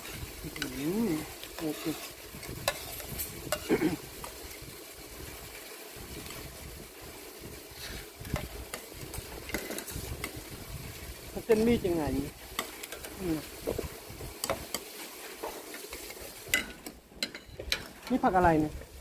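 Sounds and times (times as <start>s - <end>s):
spoon scraping through noodles: 0.0s - 4.1s, 7.7s - 10.4s
steady background hiss: 0.0s - 19.0s.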